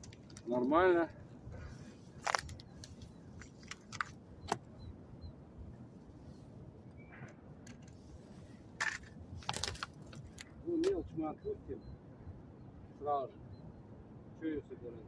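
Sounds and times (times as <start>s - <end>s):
crunches and rustles handling fish: 0.0s - 0.7s, 1.5s - 4.3s, 7.8s - 10.6s.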